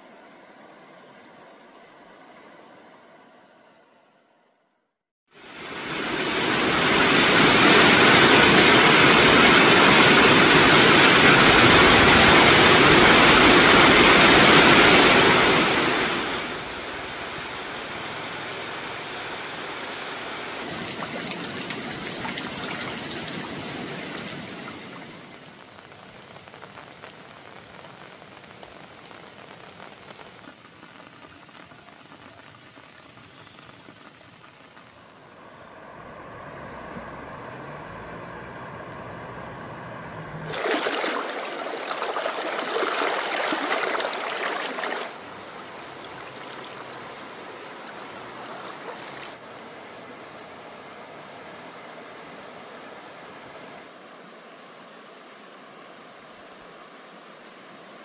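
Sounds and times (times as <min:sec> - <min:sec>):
rushing water: 0:05.3 - 0:30.8, 0:40.5 - 0:58.0
light crackle: 0:20.6 - 0:35.5, 0:40.5 - 0:50.1.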